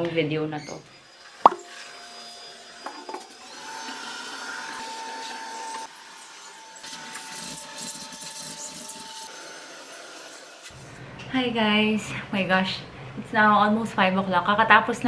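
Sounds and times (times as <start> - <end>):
handheld vacuum motor whine: 0.8 - 10.8.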